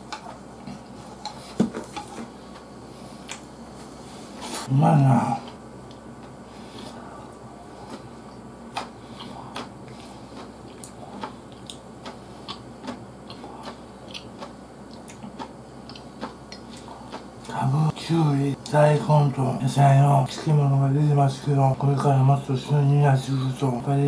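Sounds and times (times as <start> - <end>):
faint low hum: 0.0 - 24.0
chewing: 5.4 - 17.6.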